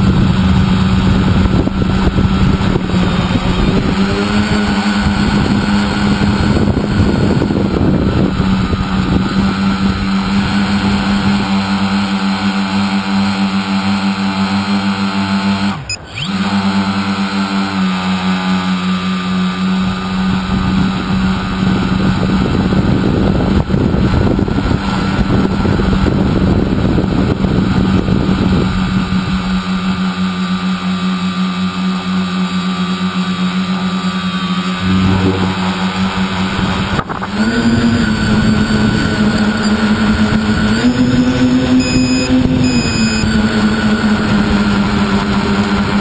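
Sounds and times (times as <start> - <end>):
wind buffeting microphone: 0.0 - 12.2, 19.7 - 30.6, 34.7 - 46.0
drone motors buzzing: 0.0 - 46.0.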